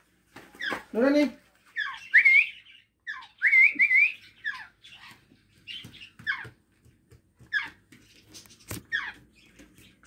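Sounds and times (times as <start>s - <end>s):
parrot chirps: 1.7s - 6.4s
parrot wavering whistle: 1.8s - 4.6s.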